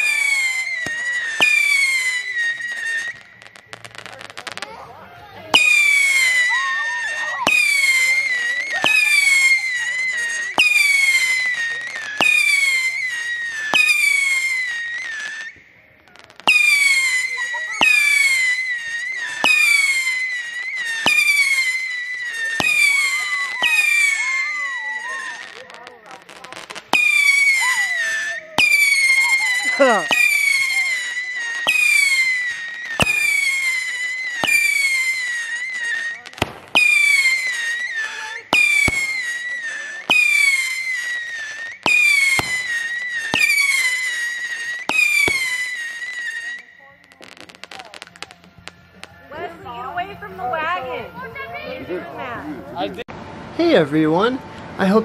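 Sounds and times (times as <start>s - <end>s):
firework whistle sliding down: 0.0s - 4.0s, 5.5s - 15.6s, 16.2s - 52.2s
firework crack: 0.0s - 55.0s
firework launch pops: 31.6s - 49.1s.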